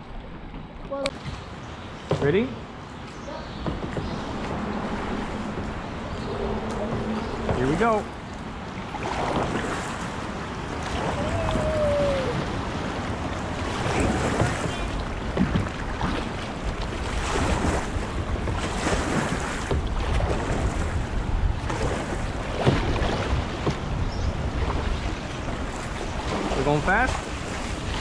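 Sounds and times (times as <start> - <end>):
kayak paddles splashing: 0.0 - 28.0
water lapping at hull: 0.0 - 28.0
wind rumbling on microphone: 3.5 - 28.0.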